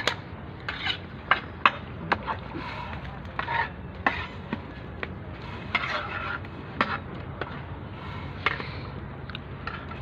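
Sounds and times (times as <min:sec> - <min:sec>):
metal spatula scraping a pot: 0:03.4 - 0:04.4, 0:05.6 - 0:07.0.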